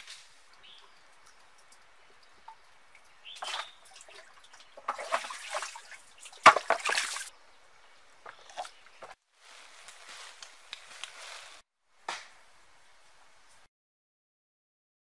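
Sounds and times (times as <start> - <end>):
water dripping: 0.4 - 7.3
water sloshing and splashing in well: 1.3 - 7.3.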